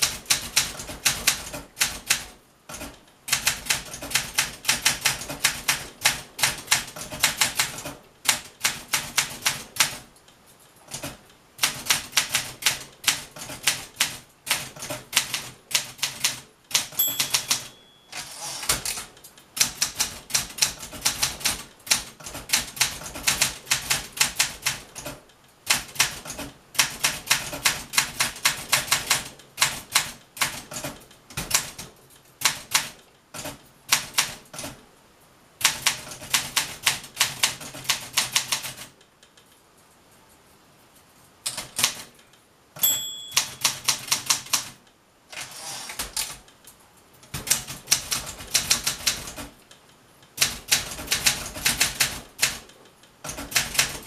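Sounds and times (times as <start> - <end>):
typewriter carriage return: 0.0 - 10.1, 10.9 - 34.8, 42.8 - 46.5, 50.4 - 54.0
typewriter typing: 0.0 - 10.1, 10.8 - 34.8, 35.6 - 39.0, 41.4 - 42.2, 42.8 - 54.0
typewriter margin bell: 16.8 - 19.0, 42.8 - 44.6.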